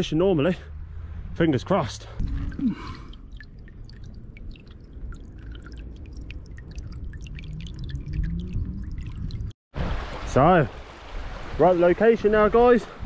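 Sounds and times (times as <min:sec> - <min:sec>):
low rumble: 0:00.6 - 0:09.5
seawater lapping and trickling: 0:00.8 - 0:13.0
water drips: 0:02.0 - 0:09.6.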